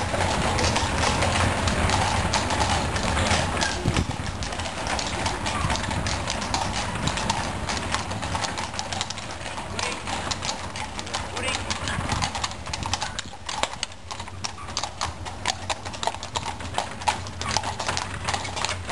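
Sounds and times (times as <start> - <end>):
hooves clip-clopping on cobblestones: 0.0 - 18.9.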